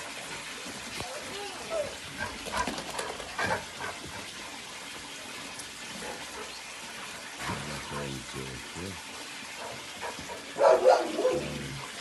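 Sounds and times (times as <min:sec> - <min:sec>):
dogs play-fighting: 0:02.0 - 0:05.0, 0:05.6 - 0:07.6, 0:09.5 - 0:11.6
steady hiss: 0:07.0 - 0:10.3
dog-like call: 0:09.6 - 0:11.8.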